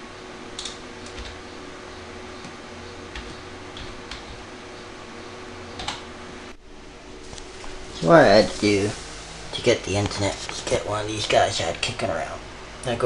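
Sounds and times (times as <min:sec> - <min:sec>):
steady low hum: 0:00.0 - 0:13.0
keyboard typing clicks: 0:00.6 - 0:01.4, 0:02.4 - 0:04.4, 0:05.7 - 0:06.1.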